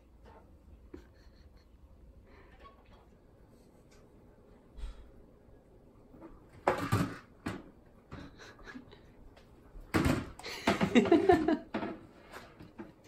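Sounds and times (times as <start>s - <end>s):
hard plastic knocking and clattering: 6.6s - 8.3s, 9.9s - 13.0s.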